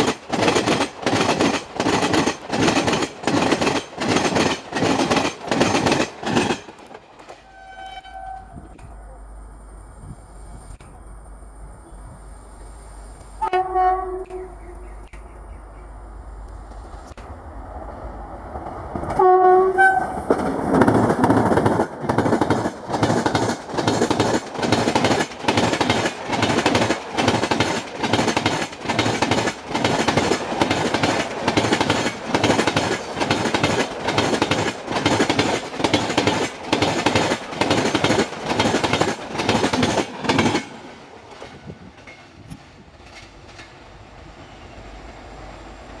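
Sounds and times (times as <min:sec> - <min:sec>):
two-note train horn: 0:07.4 - 0:08.7, 0:13.4 - 0:14.8, 0:19.2 - 0:20.2.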